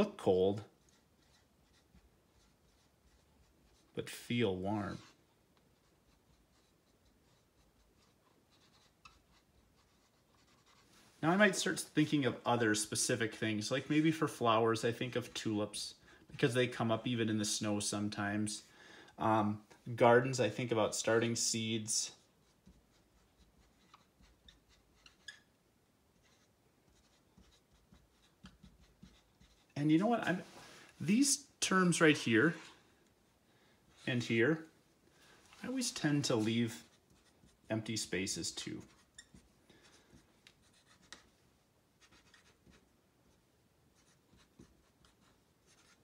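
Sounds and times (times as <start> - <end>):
marker writing on board: 0.6 - 4.0, 4.9 - 10.9, 22.4 - 25.5, 26.1 - 29.8, 36.8 - 37.7, 38.8 - 41.4, 42.0 - 42.9, 43.9 - 46.0.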